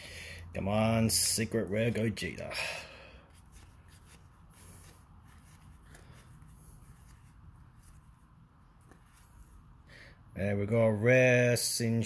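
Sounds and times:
trading cards rustling and flicking: 3.2 - 9.8.

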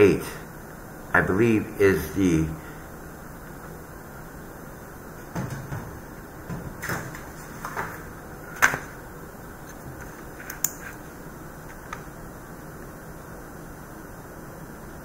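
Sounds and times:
handling noise knocks and clicks: 5.3 - 8.0, 9.7 - 11.0.

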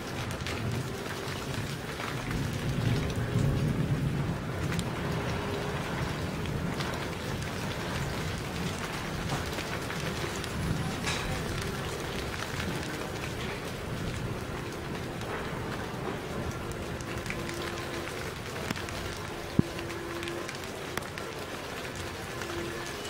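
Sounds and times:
steady rain: 0.0 - 23.0
thunder rumble: 0.0 - 23.0.

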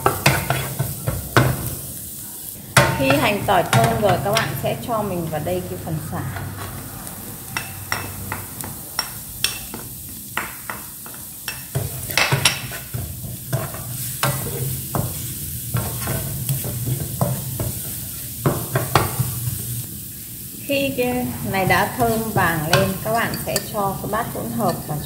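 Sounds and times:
food sizzling in hot oil: 0.0 - 25.0
wooden spatula scraping a pan: 0.1 - 1.2, 11.8 - 19.7, 21.5 - 23.5.

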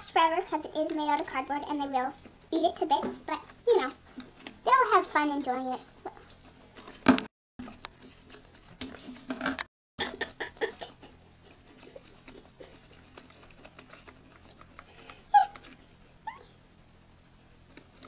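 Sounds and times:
gerbils scrabbling on bedding: 10.9 - 15.9.

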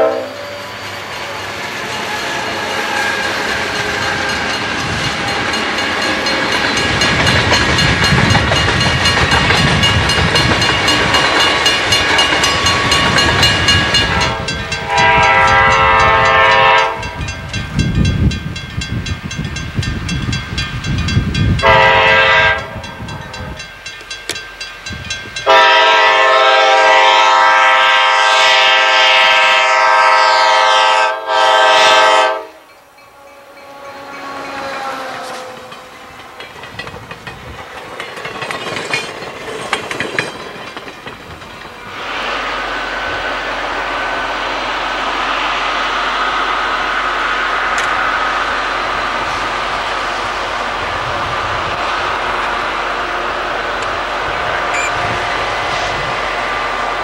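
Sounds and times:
locomotive horn blasts: 0.0 - 0.4, 12.4 - 17.4, 21.6 - 23.4, 25.4 - 35.7
train cars rolling past: 0.0 - 57.0.

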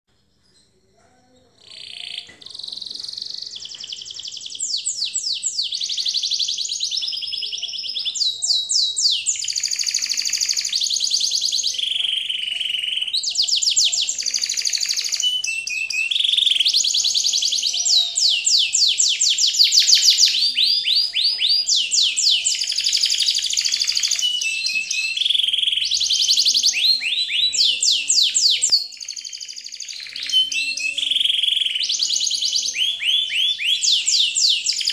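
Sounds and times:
songbird singing trills: 1.6 - 34.9.

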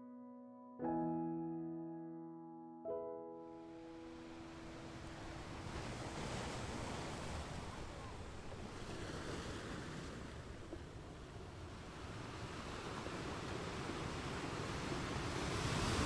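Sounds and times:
piano note ringing: 0.0 - 5.6.

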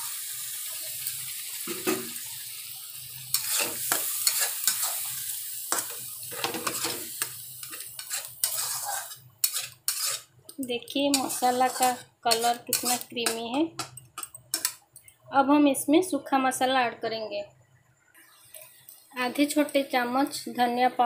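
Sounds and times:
paste sizzling in hot oil: 0.0 - 14.8
spatula scraping a steel pan: 3.3 - 5.1, 5.8 - 10.3, 11.1 - 13.4.

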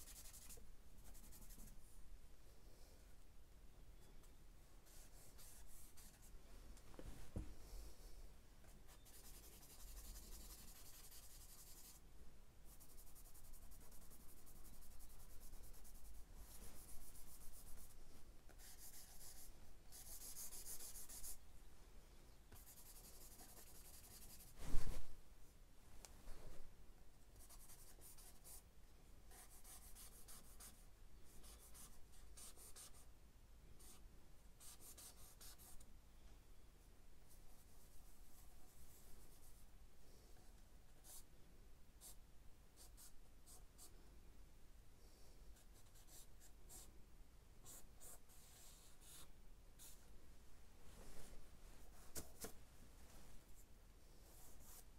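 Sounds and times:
charcoal scratching on paper: 8.9 - 12.0.

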